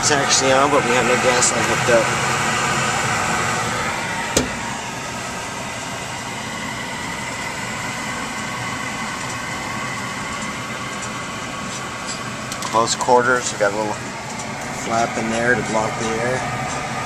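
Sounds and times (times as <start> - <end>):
hvac fan hum and rush: 0.0 - 17.0.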